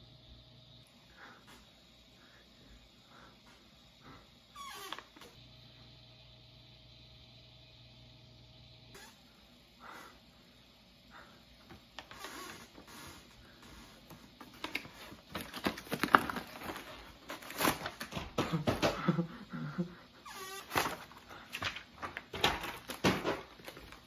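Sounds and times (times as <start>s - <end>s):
packaging rustling and crinkling: 14.1s - 18.5s, 20.4s - 24.0s.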